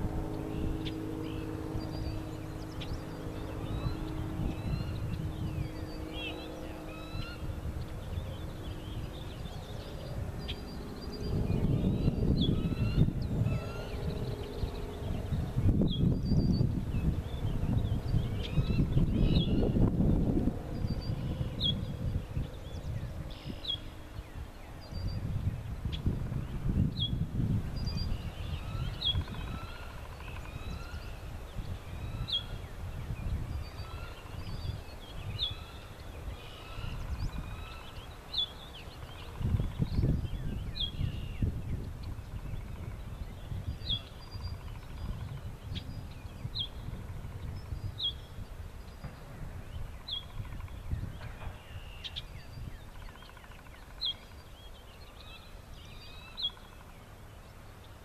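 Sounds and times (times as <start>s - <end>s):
birds warbling: 0.0s - 58.0s.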